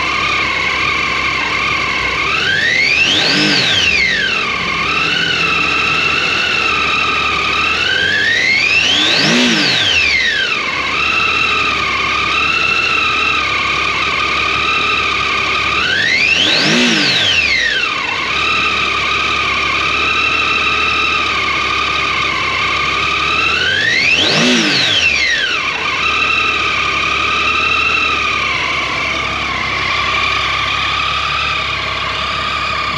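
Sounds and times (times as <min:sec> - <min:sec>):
high-pitched whine: 0:00.0 - 0:13.6
motorcycle engine idling and revving: 0:00.0 - 0:32.9.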